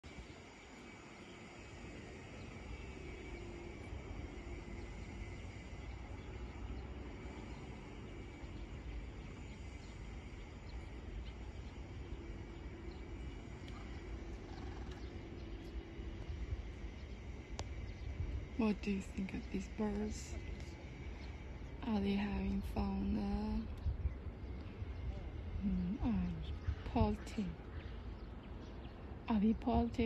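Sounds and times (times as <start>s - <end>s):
low rumble: 2.0s - 30.0s
faint ticks: 13.6s - 15.8s.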